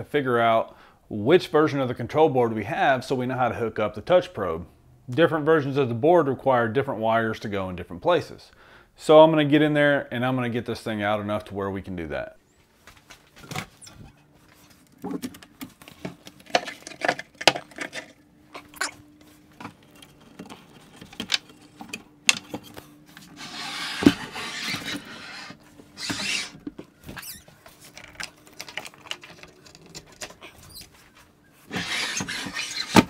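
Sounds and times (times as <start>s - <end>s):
frame scraping across wooden bench: 16.5s - 28.1s, 30.0s - 33.0s.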